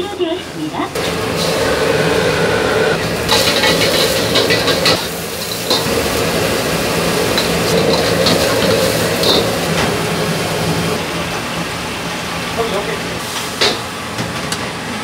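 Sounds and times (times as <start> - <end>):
steady machine hum: 0.7 - 12.8
dishes and utensils clinking: 3.3 - 5.9, 7.3 - 9.9.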